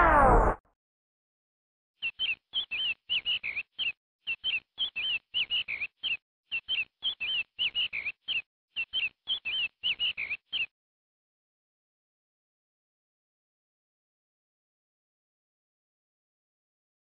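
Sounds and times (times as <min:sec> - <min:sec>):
bird-like chirping: 0:02.0 - 0:10.7.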